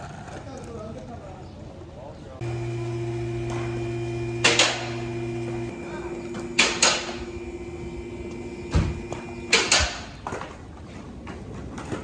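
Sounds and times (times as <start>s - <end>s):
steady machine hum: 2.4s - 10.0s.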